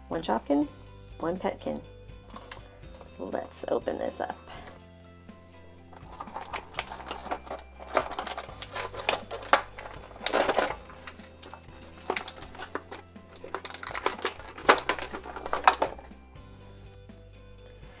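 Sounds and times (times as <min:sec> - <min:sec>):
plastic packaging crinkling: 0:05.9 - 0:16.1.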